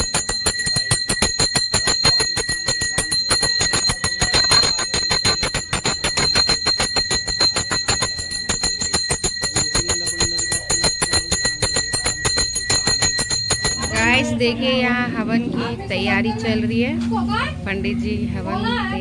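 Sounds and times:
hand bells rung rapidly: 0.0s - 15.0s.

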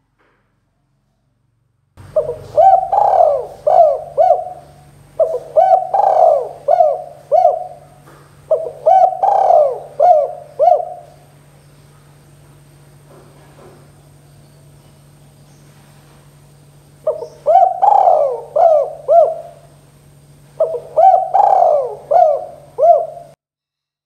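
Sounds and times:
dove cooing: 2.0s - 11.5s, 17.0s - 23.4s.

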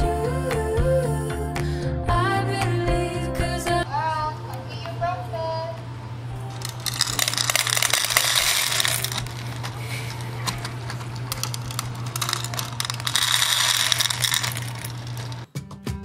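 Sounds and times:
kibble rattling into metal bowl: 6.5s - 15.5s.

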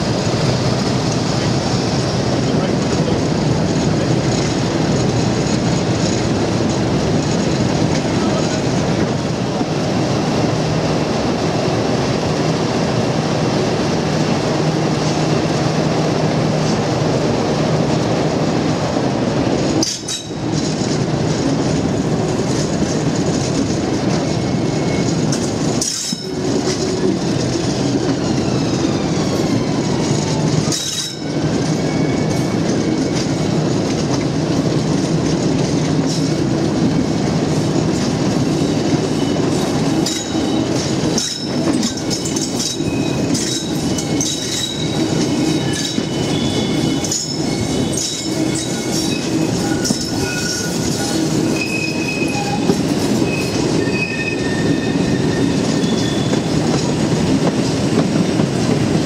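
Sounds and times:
diesel locomotive engine drone: 0.0s - 59.0s
rail joint clicks: 0.1s - 10.1s, 16.4s - 17.2s, 19.5s - 59.0s
wheels squealing: 38.6s - 56.5s.

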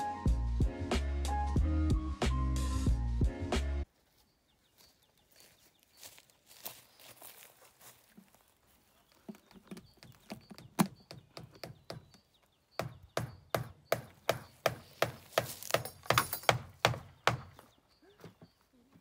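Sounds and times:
hammer nailing into wood: 12.8s - 17.5s.

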